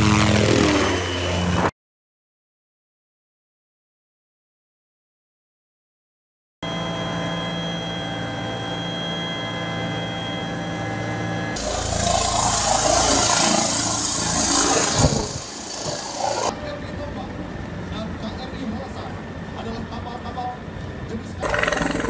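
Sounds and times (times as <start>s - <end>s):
helicopter turbine whine: 0.0s - 1.7s, 6.6s - 22.0s
helicopter rotor wash: 11.6s - 16.5s, 21.4s - 22.0s
wind rushing: 11.8s - 16.5s.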